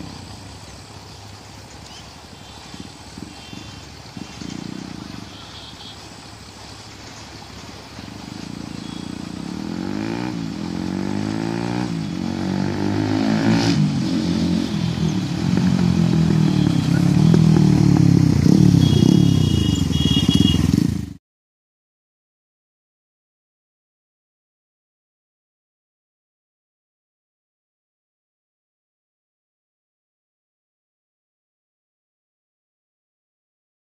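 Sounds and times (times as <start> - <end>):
motorcycle accelerating through gears: 2.5 - 5.6, 7.8 - 21.2.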